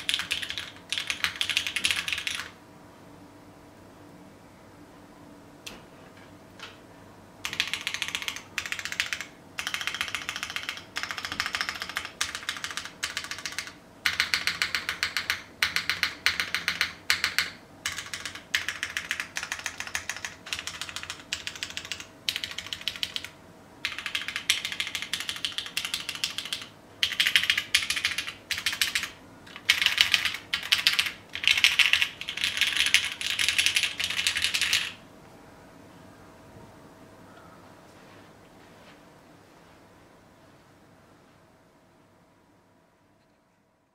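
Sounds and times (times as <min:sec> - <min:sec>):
mechanical keyboard typing: 0:00.0 - 0:02.6, 0:07.4 - 0:35.0.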